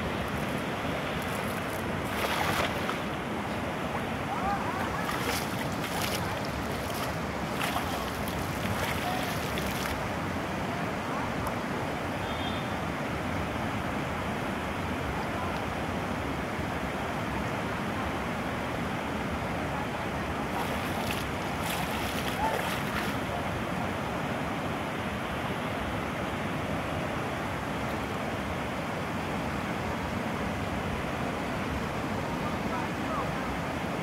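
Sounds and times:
water rushing over weir: 0.0s - 25.3s
water splashing: 0.1s - 3.2s, 4.4s - 10.1s, 20.4s - 23.3s.

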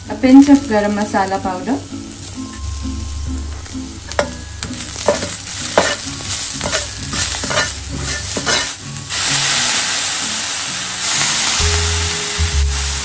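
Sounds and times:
frying sizzle: 0.0s - 13.0s
spoon scraping a pan: 4.0s - 8.9s.

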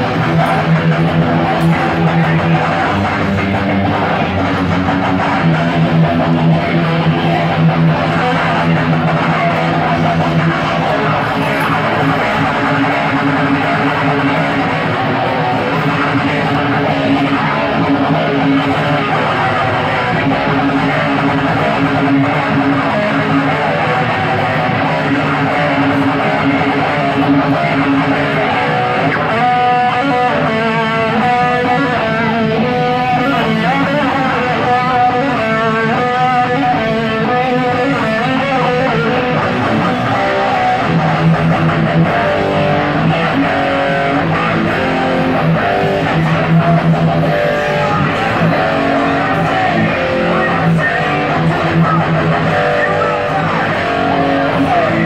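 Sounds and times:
distorted electric guitar riffs: 0.0s - 55.0s.

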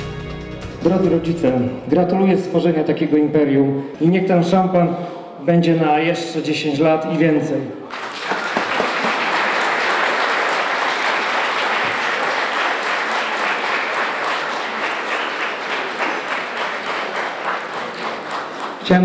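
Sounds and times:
crowd applauding: 7.9s - 19.0s.

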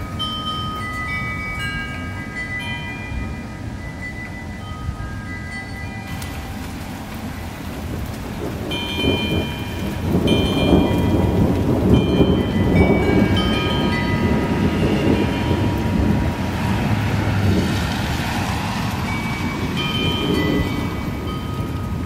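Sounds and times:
rain falling on pavement: 5.8s - 22.0s
thunder rumbling: 6.1s - 22.0s.

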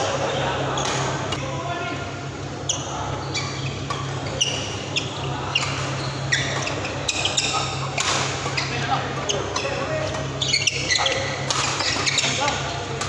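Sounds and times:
steady low hum: 0.0s - 13.0s
shoes squeaking on court: 2.6s - 13.0s.

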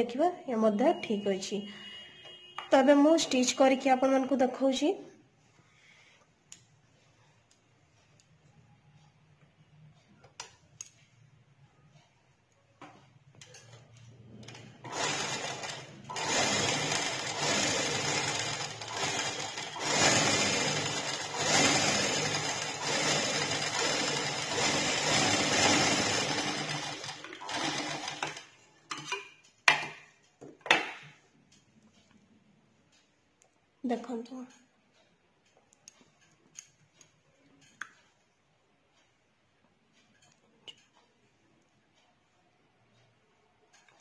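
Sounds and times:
sewing machine running: 14.4s - 28.5s.

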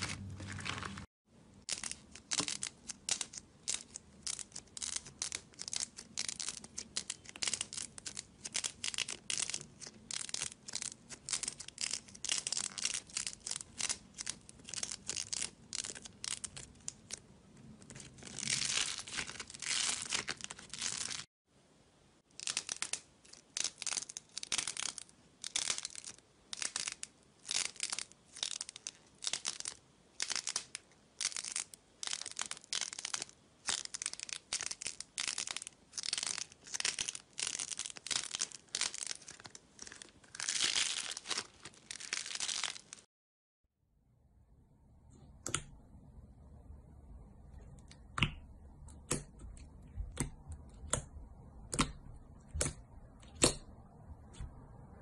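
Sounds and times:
slime squishing and crackling: 0.0s - 21.3s, 22.4s - 43.1s.

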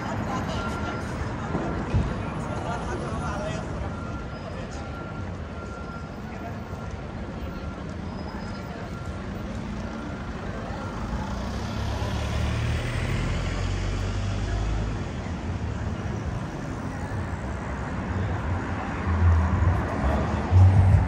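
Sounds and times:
vehicle passing: 11.0s - 14.6s.

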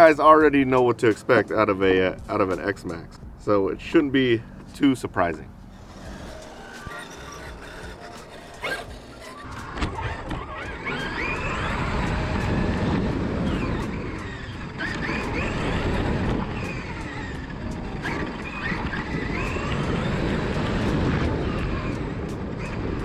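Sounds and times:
electric motor whining: 5.5s - 23.0s.

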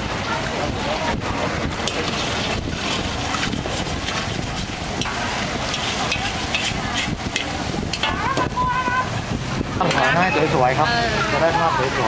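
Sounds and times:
metal utensil scraping a wok: 1.8s - 8.2s
noodles sizzling in a wok: 1.8s - 8.8s.

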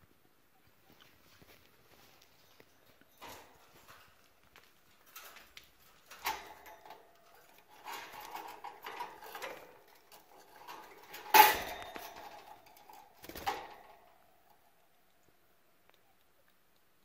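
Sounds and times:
wire bird cage rattling: 2.3s - 15.0s
metal knocks: 6.1s - 14.0s.

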